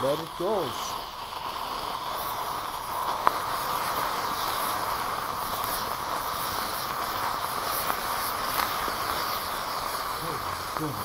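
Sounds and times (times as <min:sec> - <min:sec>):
hiss of flame: 0:00.0 - 0:11.0.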